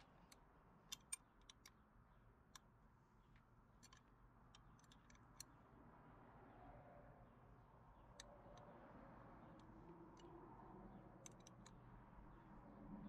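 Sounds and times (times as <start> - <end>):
faint allen key clicks: 11.2 - 11.9.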